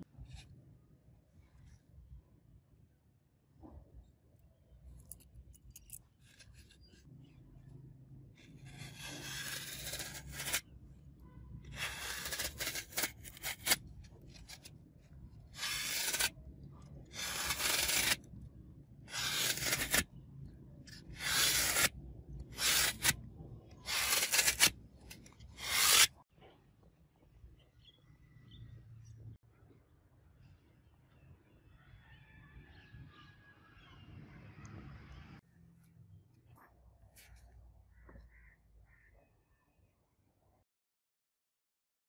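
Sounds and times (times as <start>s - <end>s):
rasping scrape strokes: 8.4s - 10.7s, 11.6s - 18.3s, 19.1s - 20.2s, 20.9s - 26.2s.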